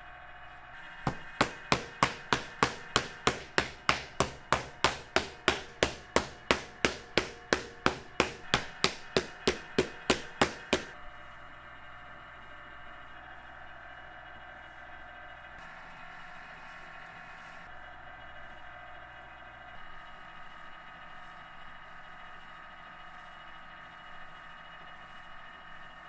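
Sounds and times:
wooden paddle beating clay jar: 0:01.1 - 0:11.0.

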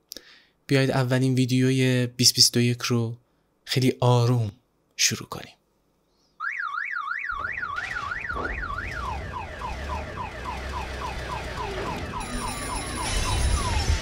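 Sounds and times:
electronic alarm siren: 0:06.4 - 0:14.0.

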